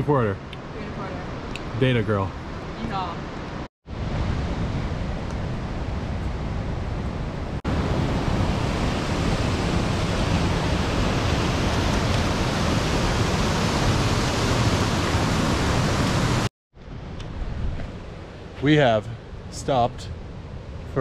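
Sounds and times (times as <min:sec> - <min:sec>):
river water rushing: 0:07.7 - 0:16.5.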